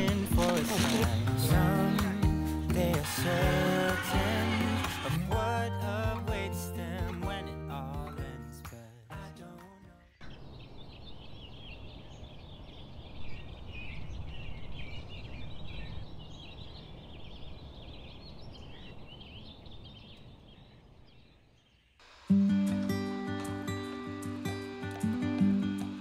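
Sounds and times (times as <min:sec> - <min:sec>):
small birds chirping: 0:00.0 - 0:05.0, 0:09.4 - 0:22.0.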